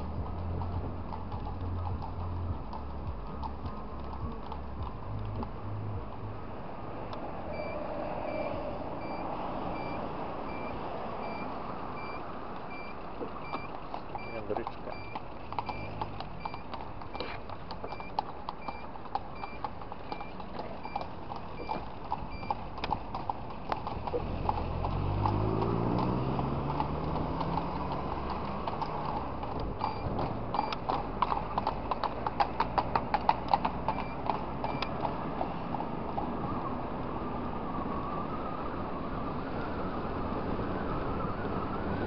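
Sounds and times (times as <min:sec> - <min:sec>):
horse hooves clip-clopping: 0:00.0 - 0:07.3, 0:10.5 - 0:36.4.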